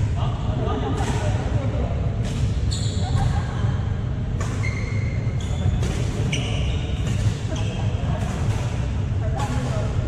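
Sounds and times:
sneaker squeaks: 0:02.2 - 0:03.4, 0:04.4 - 0:09.8
racket hitting shuttlecock: 0:04.4 - 0:04.7, 0:05.7 - 0:10.0.

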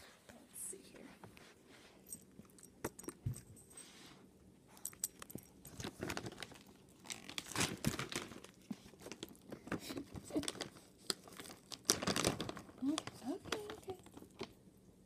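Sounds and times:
plastic packaging crinkling: 0:05.7 - 0:14.6.

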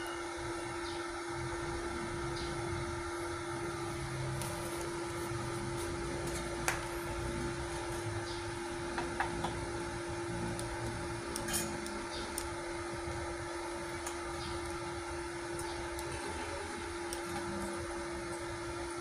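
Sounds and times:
welding machine humming: 0:00.0 - 0:19.0
torch clicks: 0:10.3 - 0:13.2, 0:15.5 - 0:18.4.

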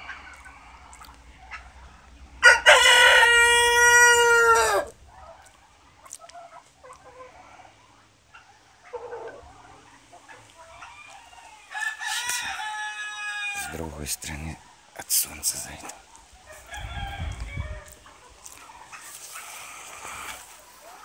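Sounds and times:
faint hen clucking: 0:00.0 - 0:21.0
rooster crowing: 0:02.4 - 0:05.0, 0:11.6 - 0:13.8, 0:16.5 - 0:18.0.

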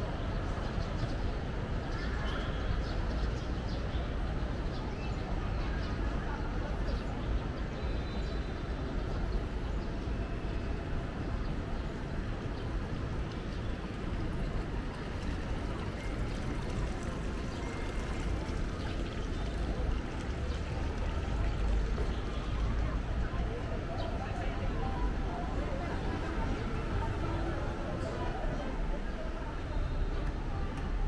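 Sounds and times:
city street background noise: 0:00.0 - 0:31.0.

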